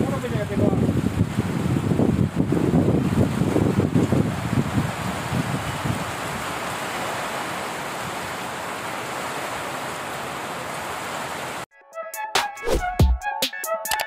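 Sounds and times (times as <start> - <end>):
wind buffeting microphone: 0.0 - 6.8.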